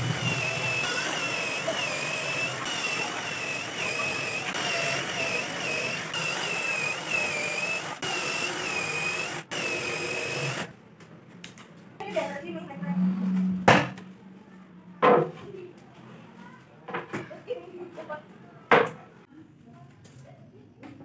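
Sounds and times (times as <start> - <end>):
cordless drill boring into wood: 0.0 - 10.7.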